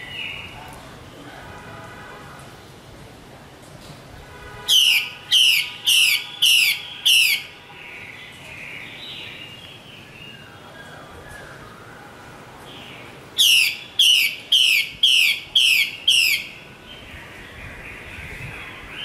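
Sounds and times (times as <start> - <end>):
bird warbling: 4.7 - 7.5, 13.4 - 16.6
bird calling sharp notes: 4.7 - 11.7, 13.4 - 16.6.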